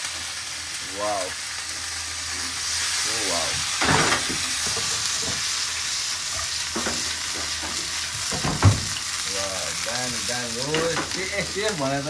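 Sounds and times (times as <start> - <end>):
potatoes sizzling in oil: 0.0 - 12.0.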